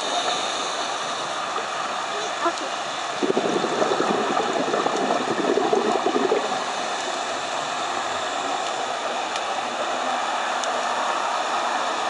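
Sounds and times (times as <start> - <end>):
rushing hiss of water: 0.0 - 12.0
underwater bubbling: 2.9 - 9.2.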